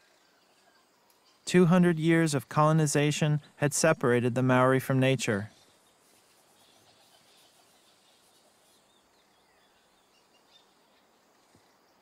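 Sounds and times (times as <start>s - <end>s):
faint bird chirps: 0.0s - 1.5s, 5.5s - 12.0s.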